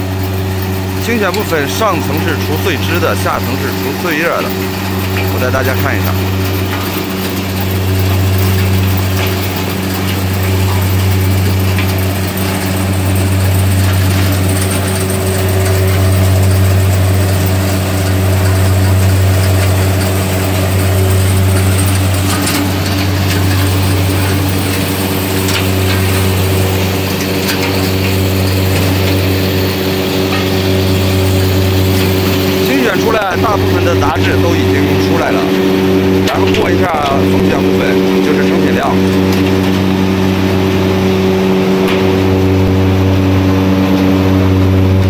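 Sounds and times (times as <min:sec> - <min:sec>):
machine humming: 0:00.0 - 0:45.0
noisy rush: 0:19.1 - 0:45.0.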